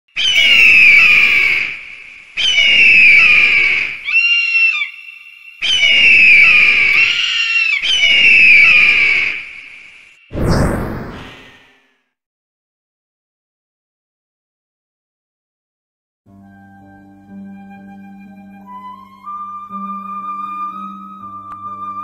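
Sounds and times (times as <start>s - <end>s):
bird of prey screeching: 0.1s - 1.8s, 2.4s - 9.5s.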